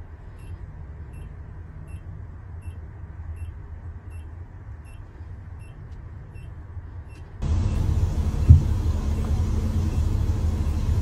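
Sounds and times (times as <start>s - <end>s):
warning beeps: 3.4s - 10.9s
truck engine idling: 7.4s - 11.0s.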